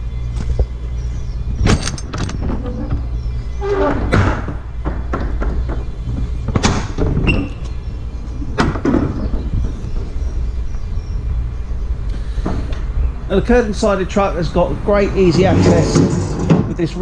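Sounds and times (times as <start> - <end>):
steady low rumble: 0.0 - 3.6, 5.6 - 17.0
van door rattling open: 1.3 - 10.7
metallic latch clacks: 1.6 - 3.1.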